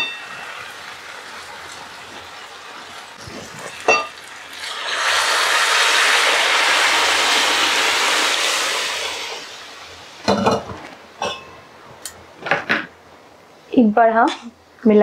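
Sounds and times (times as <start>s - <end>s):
food sizzling in pan: 0.0s - 11.8s.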